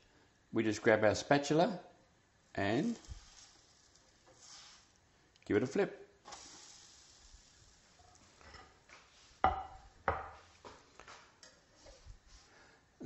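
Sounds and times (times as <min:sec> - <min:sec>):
pancake sizzling in frying pan: 0:02.8 - 0:05.0, 0:06.2 - 0:09.6.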